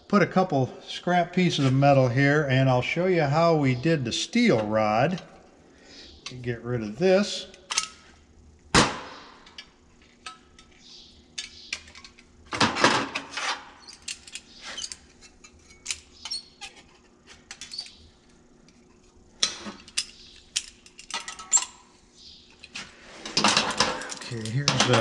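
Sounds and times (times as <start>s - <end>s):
metal tools clattering on steel tray: 19.4s - 21.8s, 23.3s - 25.0s.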